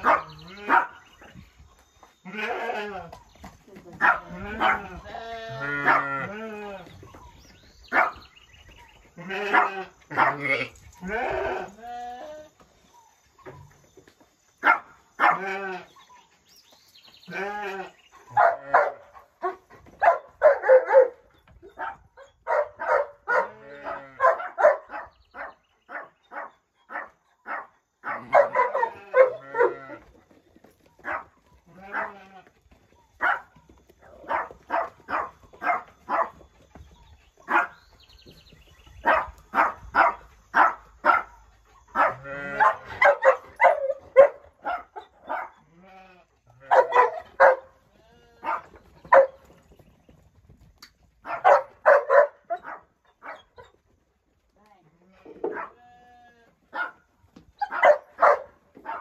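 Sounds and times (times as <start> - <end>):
dog barking: 0.0 - 1.0, 4.0 - 4.9, 5.8 - 6.2, 7.9 - 8.2, 9.5 - 10.4, 14.6 - 15.5, 18.3 - 29.8, 33.2 - 33.5, 34.2 - 36.4, 37.5 - 37.8, 39.0 - 45.6, 46.6 - 47.8, 48.4 - 49.4, 51.2 - 53.6, 55.4 - 55.8, 56.7 - 59.0
sheep bleating: 2.2 - 3.2, 4.3 - 6.9, 9.2 - 12.5, 15.3 - 16.0, 17.3 - 18.8, 23.5 - 24.3, 31.7 - 32.5, 42.0 - 42.8, 45.7 - 47.0, 47.9 - 48.6, 55.0 - 56.6.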